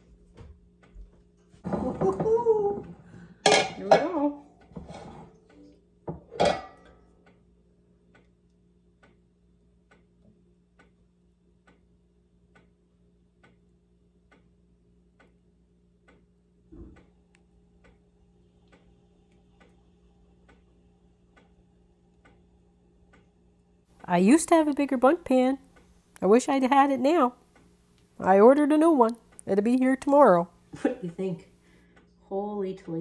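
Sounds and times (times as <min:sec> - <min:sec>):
low steady hum: 0:00.0 - 0:33.0
faint mechanical ticking: 0:06.9 - 0:33.0.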